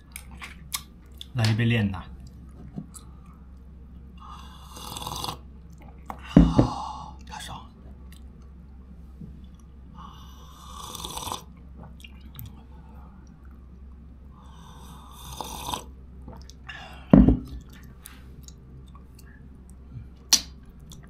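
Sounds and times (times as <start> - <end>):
loud thump: 6.4 - 6.8
slurping sips of a drink: 10.6 - 11.5, 15.1 - 15.9.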